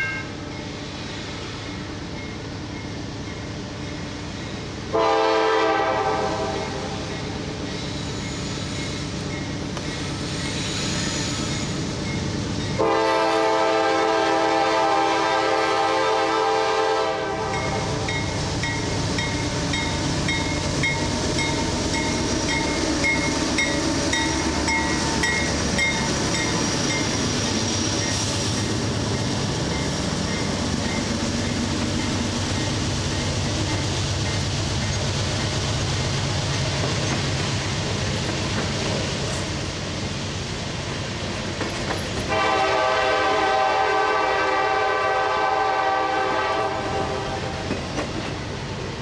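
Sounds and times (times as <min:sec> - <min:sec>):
locomotive bell ringing: 0:00.0 - 0:00.8, 0:17.5 - 0:27.3
train air horn blast: 0:04.9 - 0:07.0, 0:12.8 - 0:18.1, 0:42.3 - 0:47.6
train wheels clacking over rail joints: 0:18.0 - 0:39.6, 0:41.3 - 0:42.6, 0:47.6 - 0:48.6.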